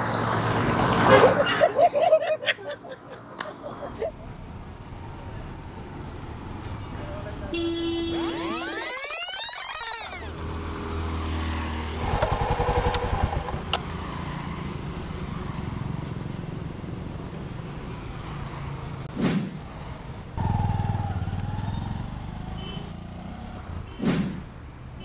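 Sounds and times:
motorcycle engine idling and revving: 10.4s - 24.9s
short whoosh: 19.1s - 19.7s, 24.0s - 24.5s.

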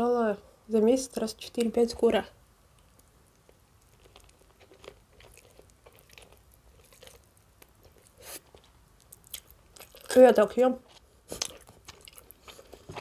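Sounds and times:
chewing with mouth clicks: 2.7s - 10.2s, 10.8s - 13.0s.

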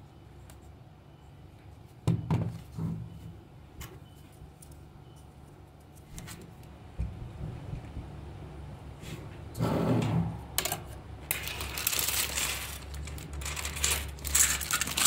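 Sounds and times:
plastic toy track pieces clicking: 11.3s - 15.0s.

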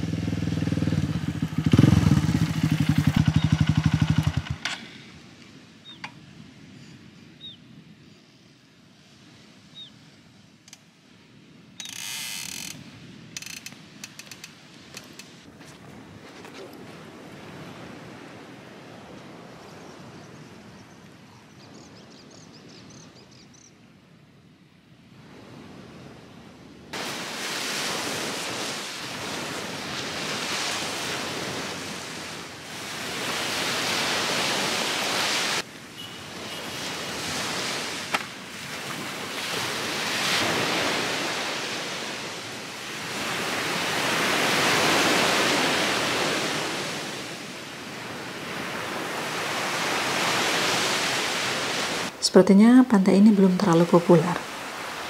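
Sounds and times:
surf breaking on beach: 26.9s - 35.7s, 36.3s - 52.2s, 53.9s - 55.0s.

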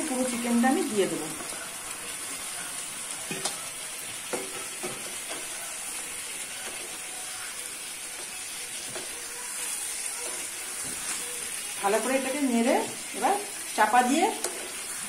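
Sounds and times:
food sizzling in a pan: 0.0s - 15.0s
utensils knocking against a pan: 4.3s - 5.4s.

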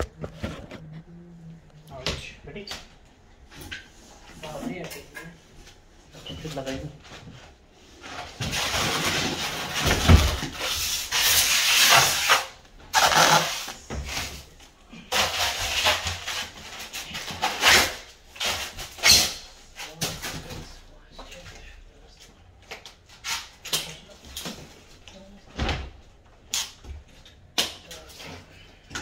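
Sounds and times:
cardboard and styrofoam rustling: 8.1s - 17.8s.

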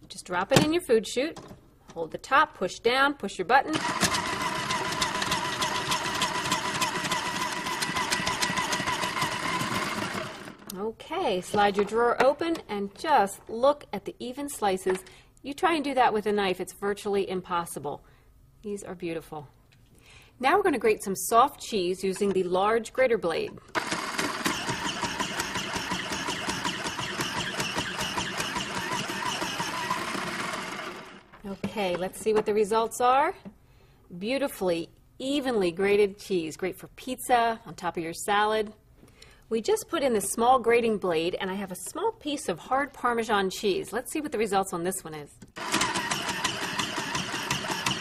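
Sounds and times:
electric slicer motor whine: 23.8s - 31.3s, 45.6s - 48.0s.

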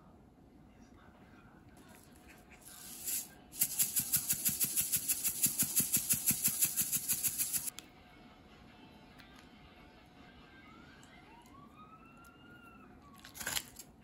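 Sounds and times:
seeds rattling in shaken container: 2.6s - 7.7s.

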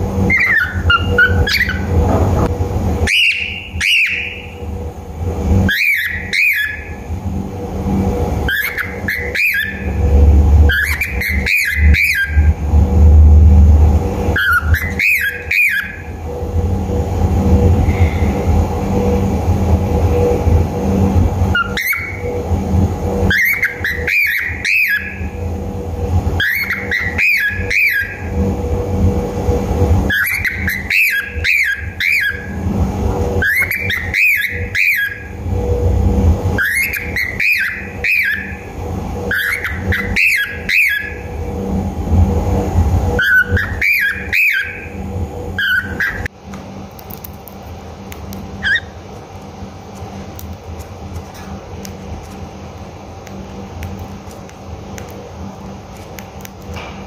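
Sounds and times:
steady low rumble: 0.0s - 57.0s
cockatiel whistling calls: 0.3s - 1.9s, 3.0s - 4.6s, 5.7s - 7.0s, 8.5s - 10.0s, 10.6s - 12.6s, 14.4s - 16.1s, 21.5s - 22.3s, 23.3s - 25.3s, 26.4s - 28.3s, 30.1s - 32.6s, 33.4s - 35.3s, 36.6s - 38.7s, 39.3s - 41.3s, 43.2s - 45.0s, 45.6s - 46.3s, 48.6s - 49.0s.

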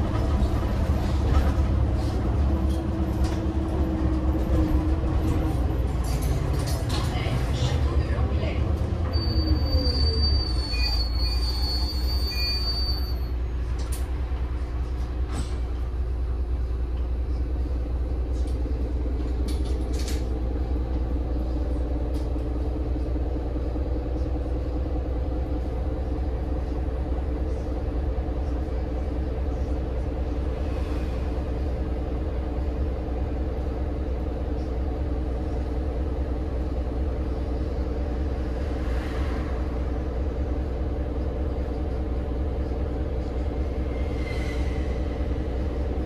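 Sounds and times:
bus diesel engine drone: 0.0s - 46.0s
high squeal: 9.1s - 13.4s.

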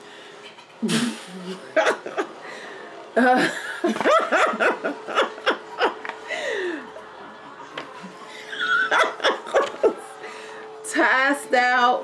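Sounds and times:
woman laughing: 3.2s - 6.8s, 8.2s - 10.2s.

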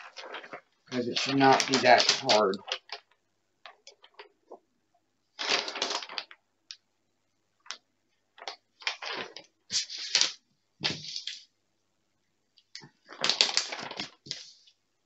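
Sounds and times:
paper crinkling and rustling: 0.0s - 3.2s, 5.4s - 6.4s, 12.8s - 14.7s.

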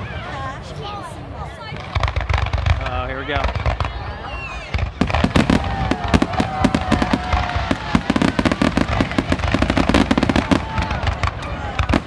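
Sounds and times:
fireworks bangs and crackling: 1.2s - 12.0s
falling firework whistle: 4.2s - 11.1s.

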